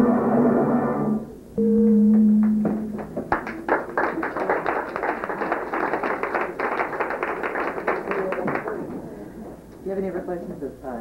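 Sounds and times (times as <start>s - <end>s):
held music note: 1.0s - 3.1s
audience applauding: 2.4s - 9.1s.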